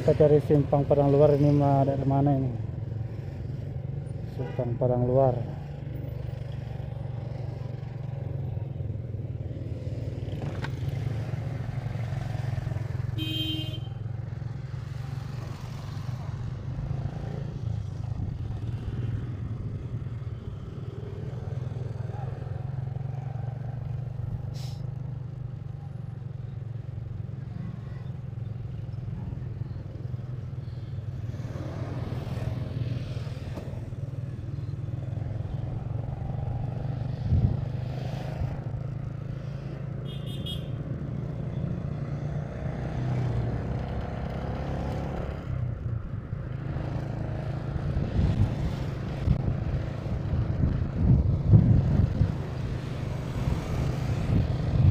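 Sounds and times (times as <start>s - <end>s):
road and traffic noise: 0.0s - 54.9s
gusty rumble: 48.0s - 52.4s.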